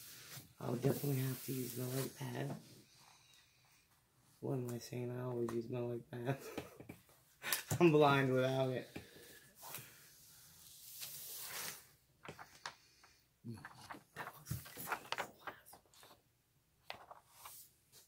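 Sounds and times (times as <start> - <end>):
paper and plastic crinkling: 13.6 - 16.2.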